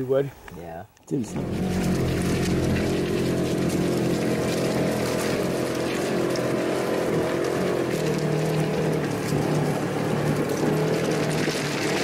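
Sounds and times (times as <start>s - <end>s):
vehicle engine running: 1.1s - 12.0s.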